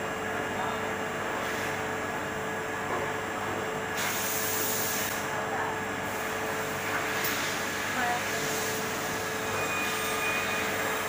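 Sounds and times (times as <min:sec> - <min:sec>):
hiss of air: 0:04.0 - 0:05.2.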